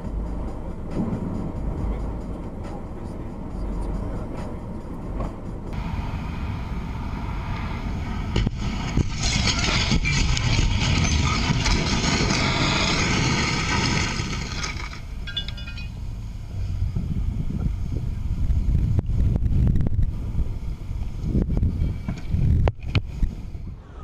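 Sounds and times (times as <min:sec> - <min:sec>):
loud rushing noise: 0:00.0 - 0:15.2.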